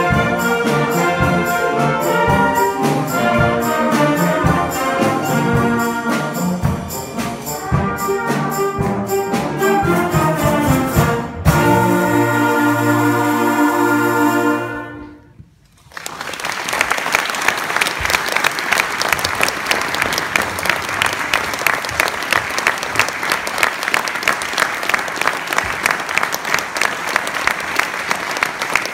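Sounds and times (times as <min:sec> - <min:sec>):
wind band chord: 0:00.0 - 0:15.3
audience applause: 0:15.8 - 0:28.9.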